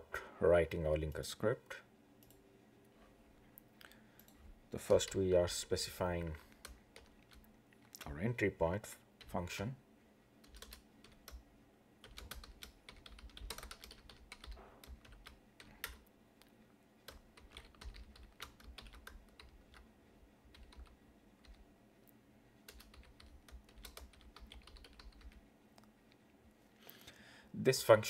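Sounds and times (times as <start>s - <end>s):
faint keyboard typing: 2.2s - 2.4s, 3.6s - 5.6s, 6.2s - 8.2s, 10.4s - 26.2s.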